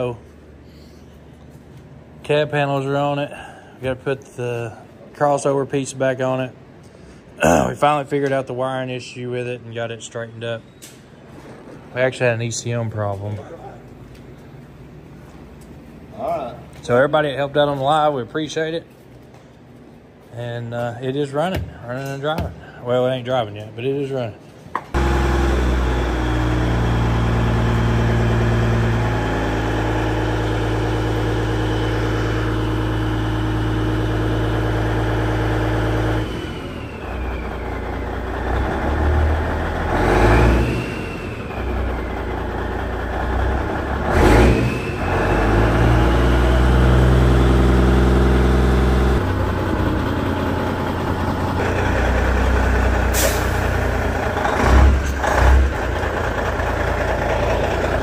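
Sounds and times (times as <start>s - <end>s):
diesel truck engine: 24.9s - 58.0s
air brake hisses: 53.0s - 53.6s.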